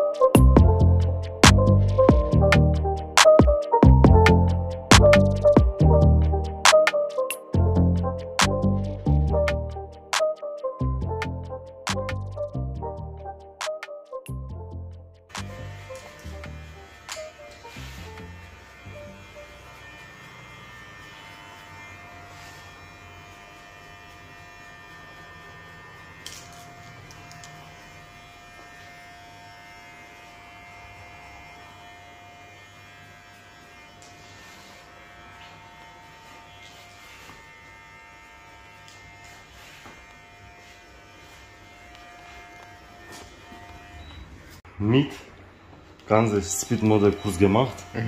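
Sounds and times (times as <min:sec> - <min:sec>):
hair clipper buzzing: 0:15.3 - 0:44.6, 0:46.7 - 0:48.0.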